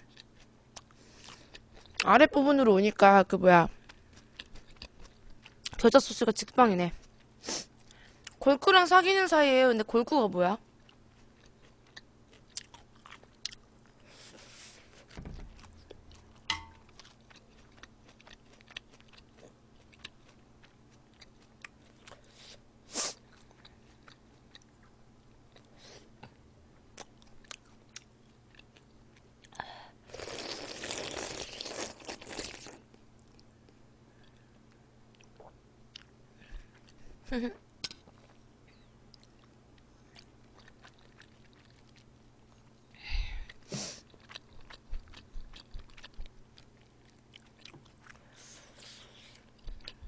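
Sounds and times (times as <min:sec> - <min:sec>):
crunching and chewing vegetables: 0:00.0 - 0:02.1, 0:03.6 - 0:08.4, 0:10.7 - 0:50.0
loud slurping of noodles: 0:30.1 - 0:32.8.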